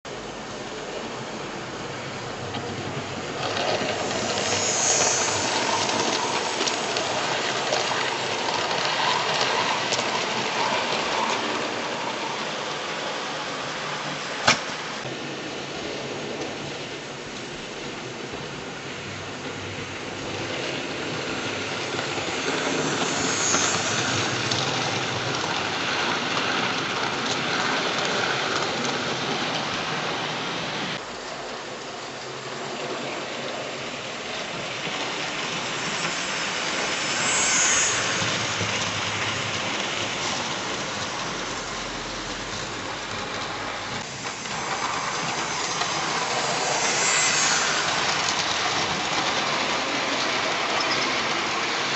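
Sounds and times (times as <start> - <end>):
model train wheels rattling: 34.5 - 51.9.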